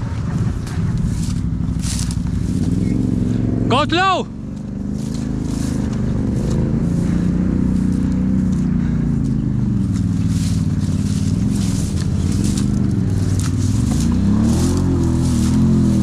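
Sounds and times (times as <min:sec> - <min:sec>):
vehicle engine running at low revs: 0:00.0 - 0:16.0.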